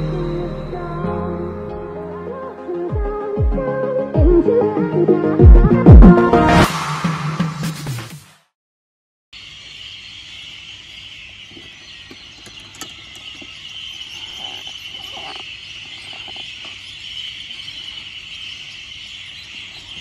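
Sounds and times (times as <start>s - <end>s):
insects chirring: 9.4s - 20.0s.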